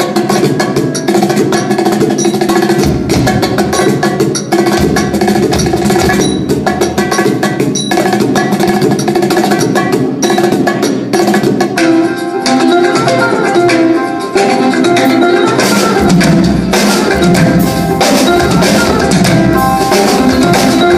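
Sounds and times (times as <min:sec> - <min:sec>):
drum kit and percussion: 0:00.0 - 0:20.9
music with steady pitches: 0:00.0 - 0:20.9.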